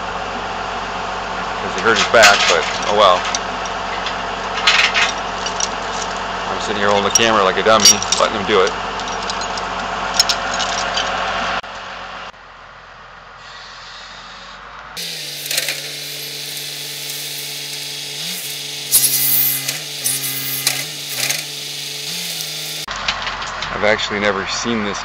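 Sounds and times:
machine engine running: 0:15.0 - 0:22.9.

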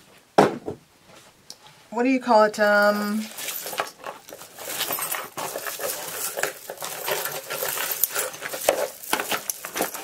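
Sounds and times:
jewelry clinking and rattling: 0:02.6 - 0:10.0.

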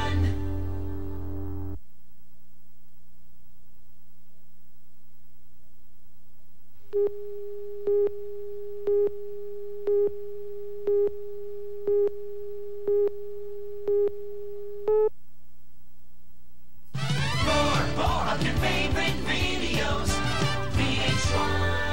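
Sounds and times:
faint steady tone: 0:00.0 - 0:16.9
low steady hum: 0:00.0 - 0:19.6.

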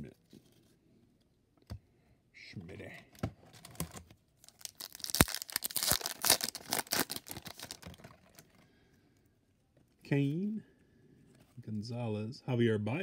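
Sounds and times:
foil wrapper tearing and crinkling: 0:04.4 - 0:08.4.

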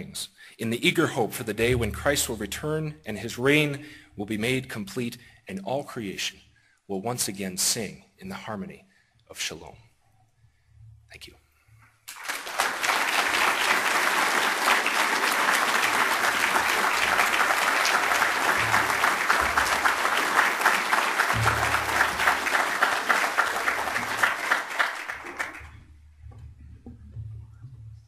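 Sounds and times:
audience applauding: 0:12.1 - 0:25.9.

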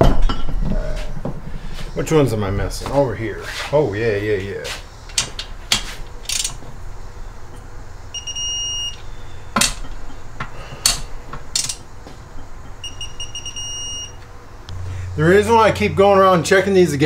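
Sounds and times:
sharp wrench clicks: 0:05.1 - 0:06.6, 0:11.6 - 0:11.8
electronic beep: 0:08.1 - 0:09.3, 0:12.4 - 0:14.2.

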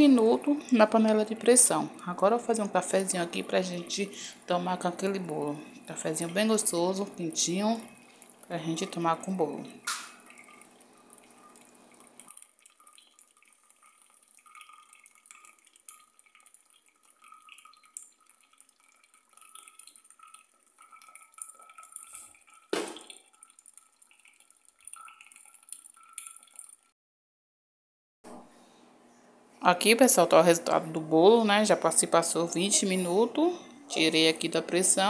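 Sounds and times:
coffee dripping through filter: 0:00.0 - 0:26.9
hot water pouring: 0:00.0 - 0:26.9
sharp knock: 0:22.7 - 0:23.1.

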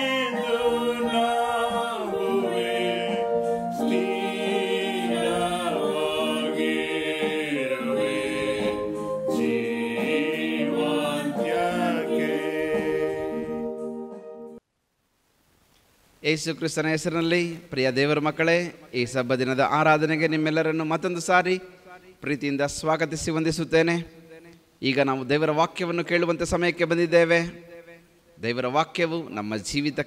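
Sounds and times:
woman singing a hymn: 0:00.0 - 0:13.7
electronic keyboard chords: 0:00.0 - 0:14.6.

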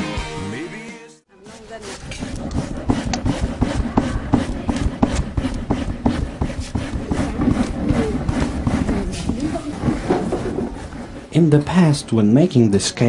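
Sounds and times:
papaya rasping on grater: 0:01.5 - 0:11.4.

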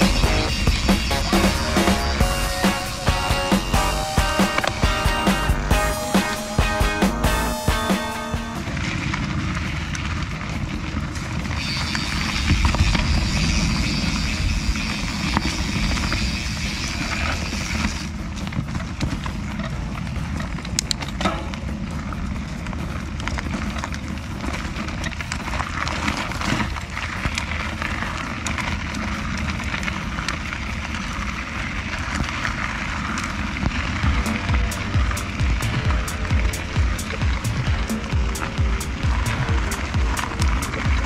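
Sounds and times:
bike rattling and knocking: 0:00.0 - 0:41.0
bike tyres rolling over dirt: 0:00.0 - 0:41.0.

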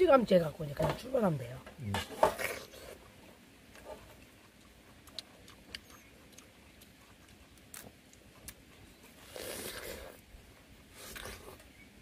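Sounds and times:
quiet outdoor background: 0:00.0 - 0:12.0
wet eating clicks: 0:02.4 - 0:10.0.

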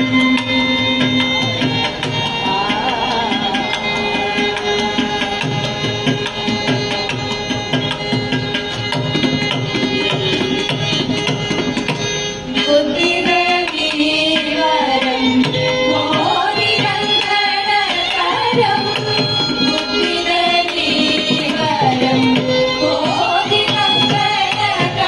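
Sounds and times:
drum playing steady rhythm: 0:00.0 - 0:25.0
violin: 0:00.0 - 0:25.0
women singing together: 0:02.3 - 0:06.0, 0:12.7 - 0:25.0.

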